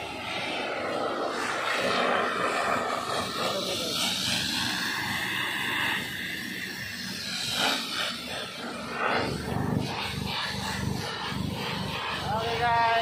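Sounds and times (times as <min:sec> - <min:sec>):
factory machinery hissing: 0:00.0 - 0:13.0
low machinery hum: 0:00.0 - 0:13.0.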